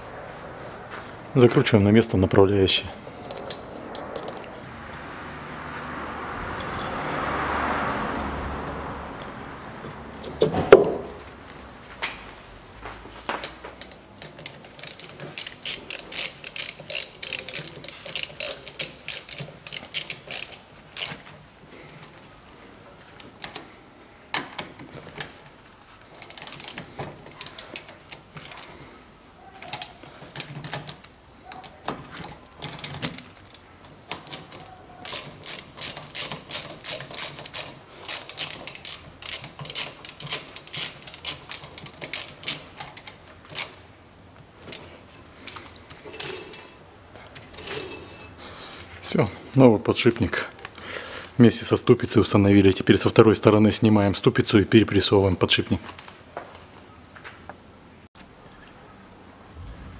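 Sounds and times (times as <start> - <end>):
ratchet wrench clicking: 14.4 - 21.3, 26.2 - 26.8, 35.0 - 43.8.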